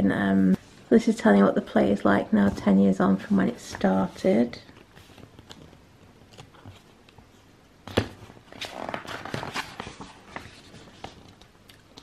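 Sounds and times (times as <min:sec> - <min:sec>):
paper rustling: 0:03.2 - 0:11.5.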